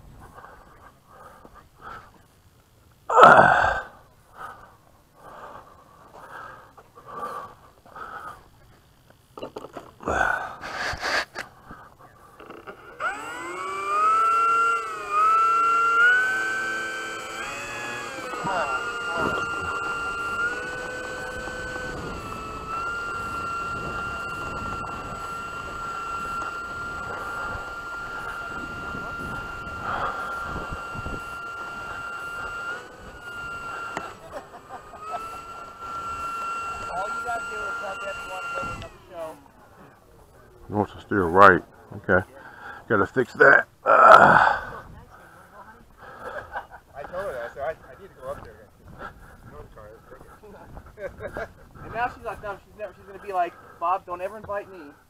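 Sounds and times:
person breathing hard: 0.1 - 2.3, 3.1 - 8.7, 10.0 - 12.5, 44.0 - 46.5
loud gasping breath: 3.1 - 8.5, 10.0 - 12.4, 44.0 - 46.5
small electric motor whining: 3.2 - 4.6, 9.4 - 41.6, 42.5 - 55.0.

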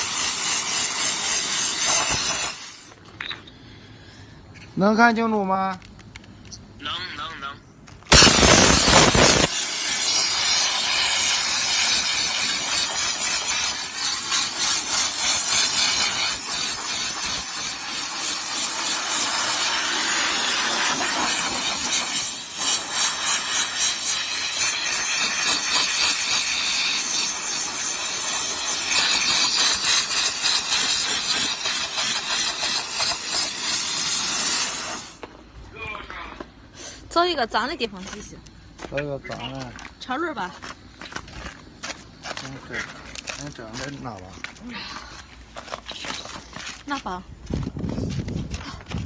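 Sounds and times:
steam spray gun hissing: 0.0 - 3.0, 8.1 - 35.2.

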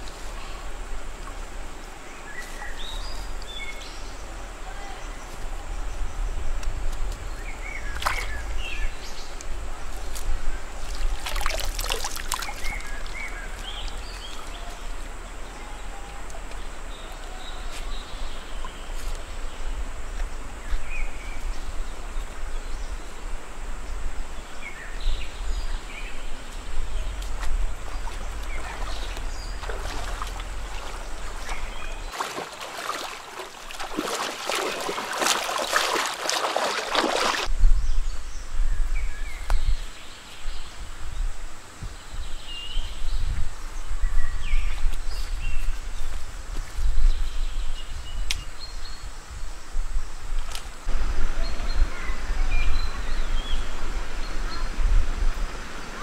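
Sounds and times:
stream running: 0.0 - 37.6, 50.2 - 56.0
splashing steps in water: 7.9 - 8.4, 10.1 - 14.6, 27.2 - 37.5.

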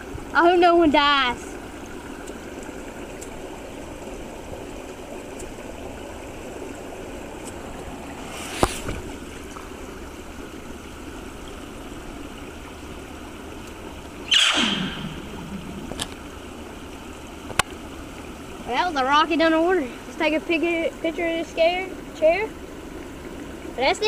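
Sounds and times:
hiss of moving water and air: 1.4 - 18.7
firework rocket pop: 14.3 - 15.2.

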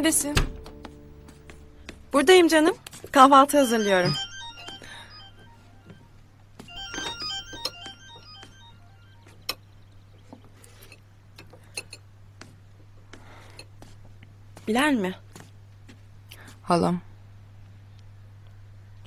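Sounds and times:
soft keyboard music: 0.0 - 9.5.

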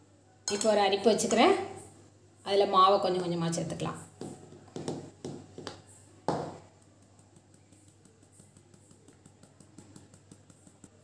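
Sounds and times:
mesh sieve tapped and shaken: 4.2 - 11.0.

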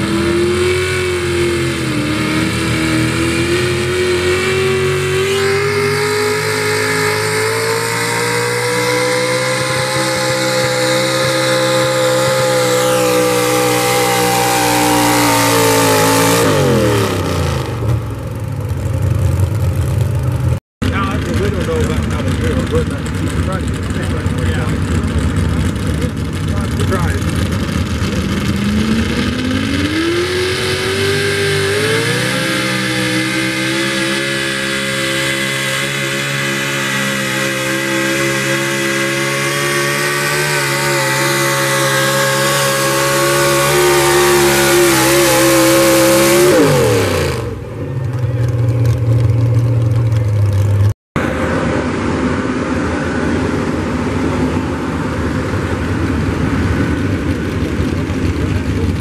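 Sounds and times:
truck engine at full throttle: 0.0 - 59.0
truck engine idling: 17.8 - 29.9, 47.5 - 50.9.

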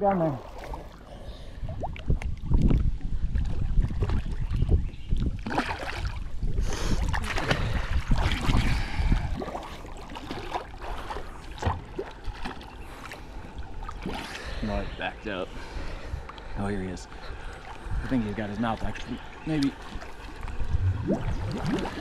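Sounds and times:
low rumble: 20.5 - 22.0.

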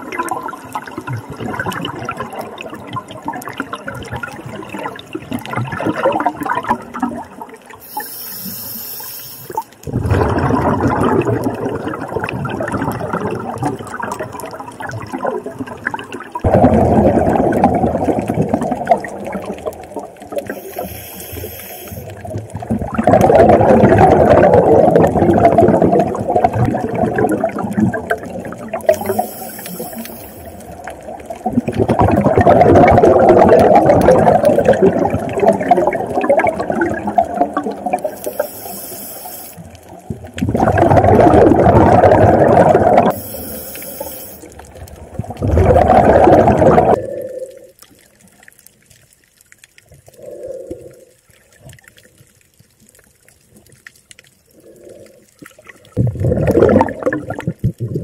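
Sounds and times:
exhaled bubbles underwater: 0.0 - 58.0
faint bubbling: 0.0 - 58.0
regulator inhale hiss: 7.8 - 9.8, 20.5 - 22.2, 28.9 - 30.7, 38.1 - 39.7, 43.1 - 44.5.

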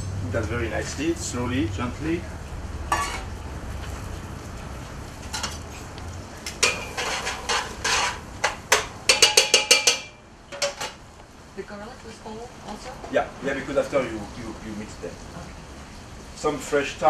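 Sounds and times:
spoon scraping and clinking pot: 2.9 - 3.3, 6.6 - 11.0.

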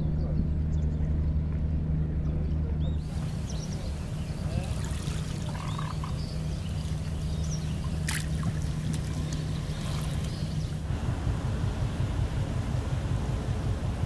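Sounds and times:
boat engine hum: 0.0 - 14.0
water lapping against hulls: 3.0 - 14.0.

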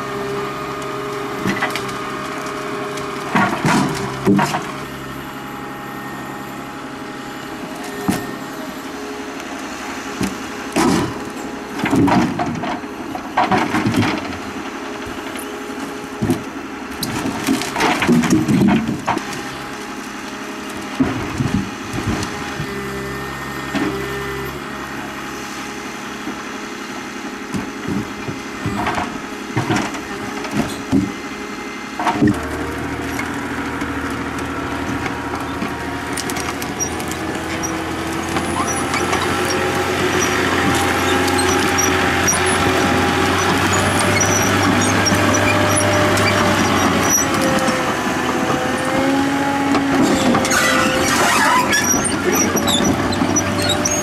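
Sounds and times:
diesel engine running: 0.0 - 54.0
logs knocking together: 3.3 - 4.7.

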